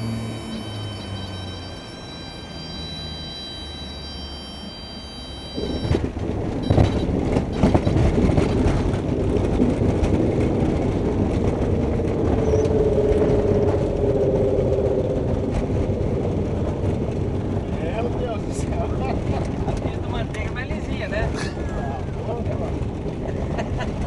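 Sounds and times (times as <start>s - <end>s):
aircraft engine drone: 0.0s - 17.8s
airframe rumbling and knocking: 5.6s - 24.0s.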